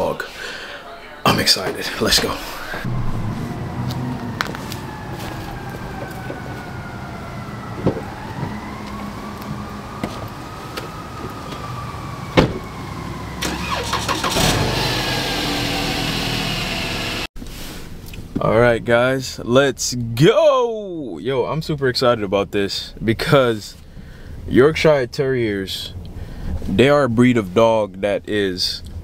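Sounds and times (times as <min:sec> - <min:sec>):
faint gliding tone: 0:02.6 - 0:06.9
car engine starting and running: 0:02.7 - 0:17.4
car door shutting: 0:07.8 - 0:08.6, 0:12.4 - 0:12.7.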